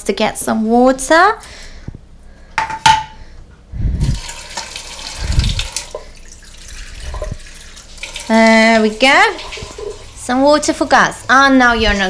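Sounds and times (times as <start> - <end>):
tap water running into metal bowl: 4.1 - 10.4.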